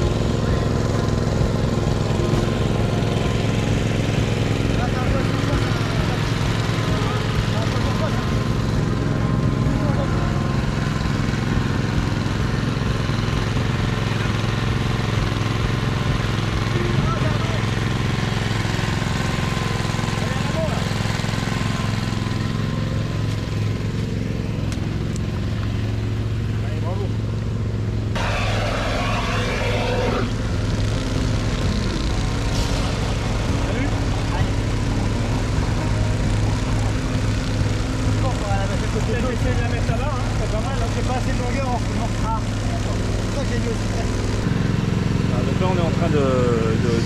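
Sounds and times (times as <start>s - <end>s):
small petrol engine running: 0.0s - 47.0s
rushing hissing noise: 28.2s - 39.0s.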